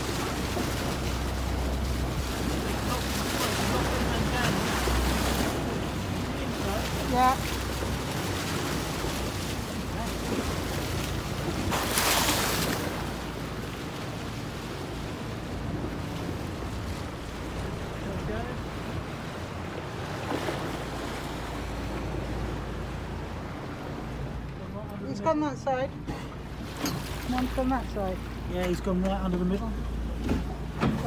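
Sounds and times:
boat engine hum: 0.0 - 31.0
water rushing along boat hull: 0.0 - 31.0.

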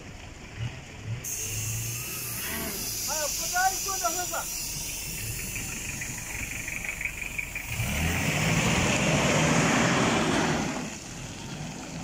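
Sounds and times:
vehicle engine driving through mud: 0.0 - 2.9, 5.4 - 12.0.

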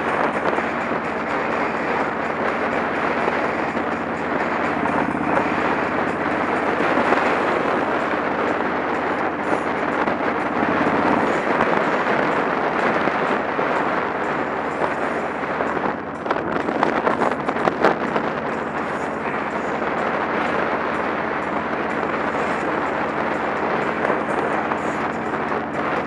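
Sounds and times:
motorcycle engine humming: 0.0 - 26.0
wind rushing over microphone: 0.0 - 26.0.

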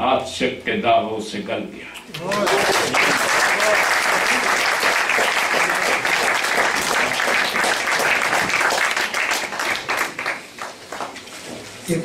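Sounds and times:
audience applauding: 2.1 - 11.2.

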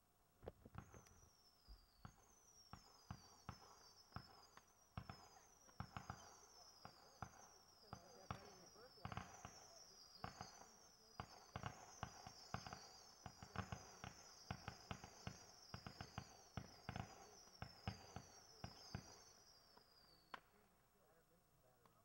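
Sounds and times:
firework pops and cracks: 0.4 - 1.4
firework whistles falling in pitch: 0.8 - 20.6.

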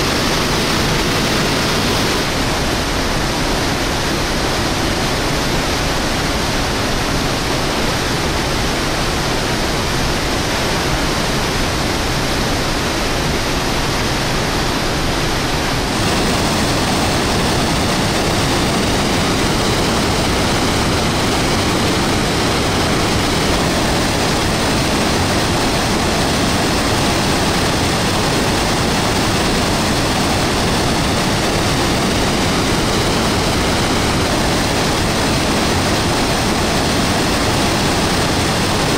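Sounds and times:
waterfall rushing: 0.0 - 3.6, 14.8 - 38.9.

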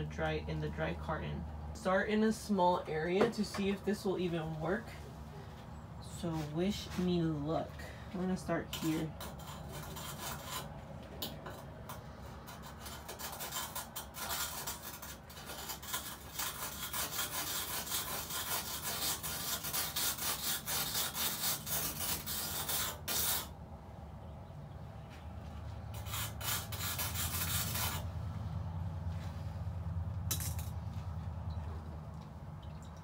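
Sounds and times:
pumice scraping on metal: 8.2 - 23.5, 25.9 - 28.1.

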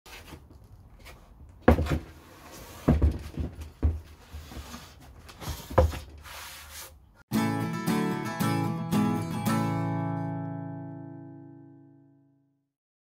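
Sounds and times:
heavy wooden thumps: 1.6 - 2.1.

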